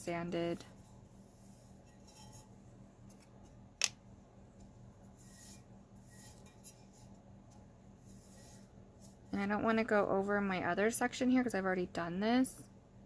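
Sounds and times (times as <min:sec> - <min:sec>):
low steady hum: 0:00.0 - 0:13.0
brush bristles rubbing: 0:05.1 - 0:07.2, 0:08.0 - 0:09.4.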